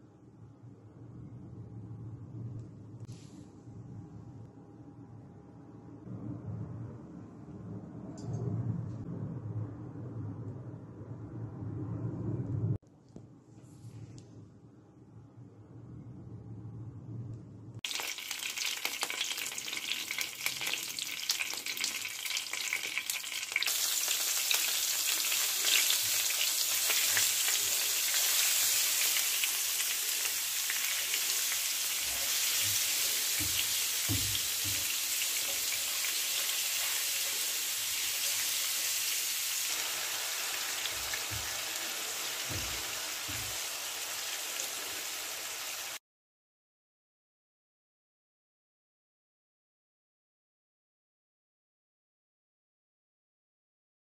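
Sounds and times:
spices sizzling in oil: 17.8s - 46.0s.

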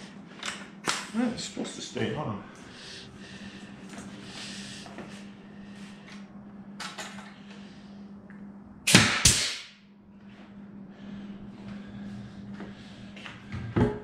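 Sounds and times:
nail gun firing: 8.9s - 9.7s.

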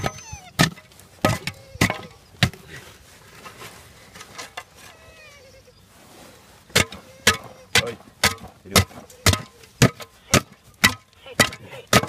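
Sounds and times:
digging tool chopping into earth: 6.7s - 12.0s.

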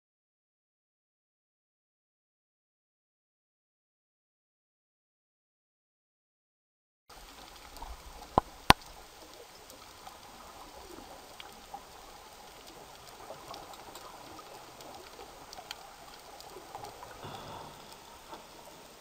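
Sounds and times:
small clicks and crackles: 7.1s - 19.0s
underwater hiss: 9.3s - 19.0s.

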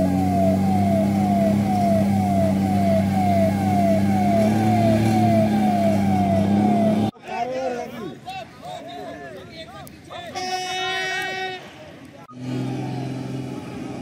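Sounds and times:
fire truck siren wailing: 0.0s - 7.1s
truck engine drone: 0.0s - 7.1s, 12.3s - 14.0s.

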